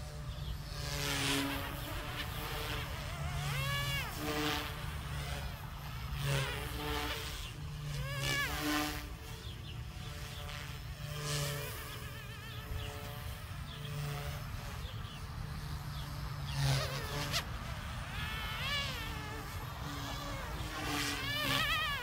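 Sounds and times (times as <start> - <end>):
helicopter motor and rotor whine: 0.0 - 22.0.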